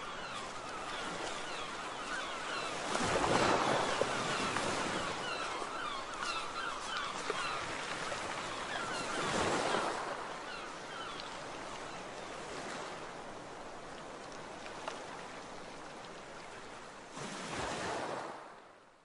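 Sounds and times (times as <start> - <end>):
faint gull calls: 0.0 - 12.0.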